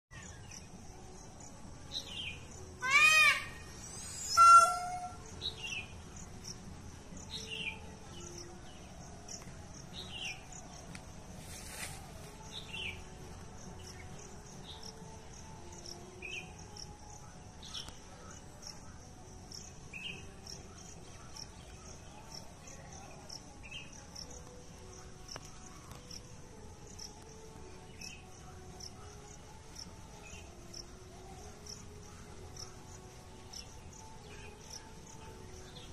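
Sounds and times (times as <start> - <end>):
crickets chirping: 0.2 - 35.9
peacock calls: 2.8 - 5.9.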